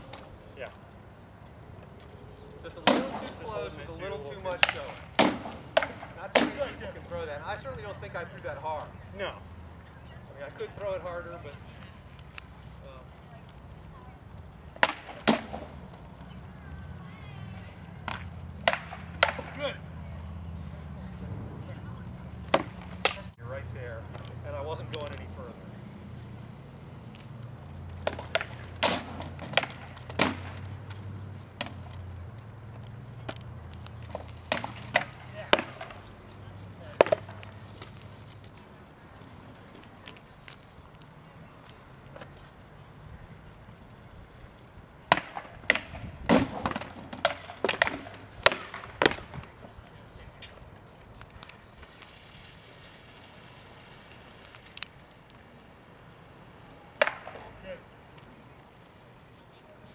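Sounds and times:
practice swords striking shields: 2.8s - 3.5s, 4.6s - 6.8s, 18.1s - 19.7s, 34.1s - 36.0s, 45.1s - 49.4s.

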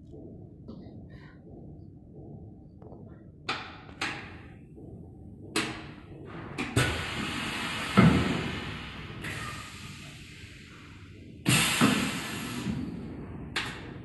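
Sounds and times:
compressed air hissing: 6.8s - 12.8s.

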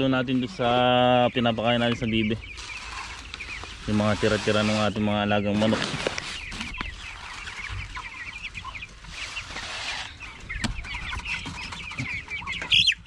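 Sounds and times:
chicks peeping and clucking: 0.0s - 13.0s.

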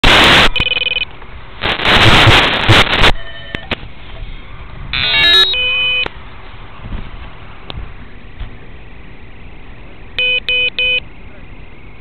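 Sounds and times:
rush of wind or handling noise: 0.0s - 5.3s, 6.0s - 9.4s
motor controller beeping tones: 5.0s - 6.1s, 10.2s - 11.0s.

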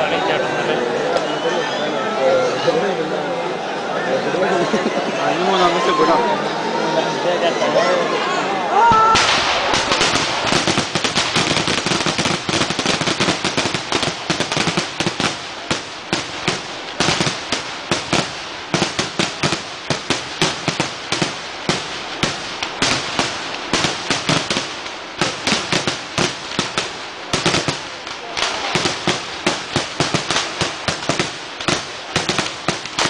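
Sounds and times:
firecrackers going off: 8.8s - 33.0s.

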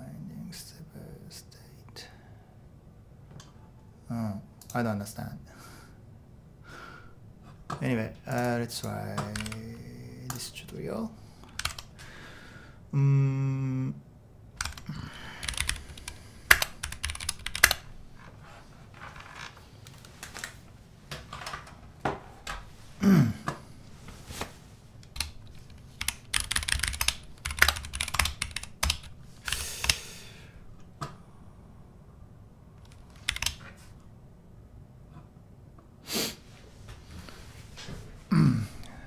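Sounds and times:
typing on computer keyboard: 8.3s - 9.7s, 11.5s - 11.9s, 14.6s - 17.9s, 25.0s - 30.0s, 32.8s - 33.6s.

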